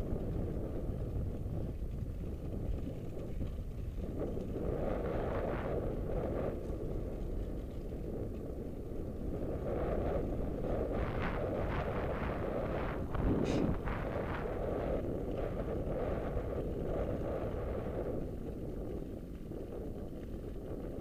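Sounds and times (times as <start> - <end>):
wind buffeting microphone: 0.0 - 21.0.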